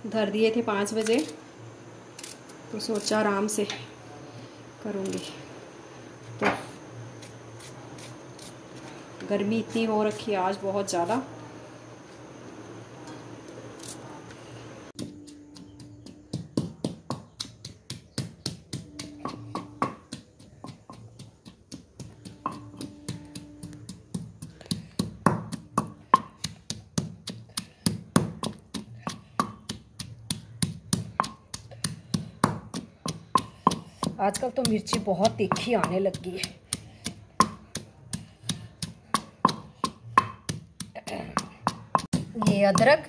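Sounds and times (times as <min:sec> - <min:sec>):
pestle pounding in stone mortar: 0:15.0 - 0:43.0.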